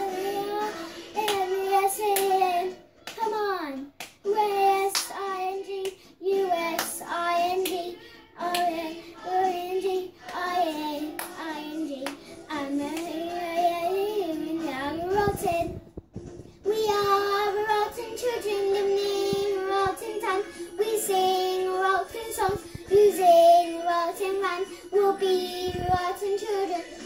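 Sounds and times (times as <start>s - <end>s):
girl singing: 0.0s - 27.0s
hand claps: 1.2s - 1.5s, 2.1s - 2.4s, 3.0s - 3.3s, 4.0s - 4.3s, 4.9s - 5.2s, 6.8s - 7.0s, 7.6s - 7.8s, 11.1s - 11.4s.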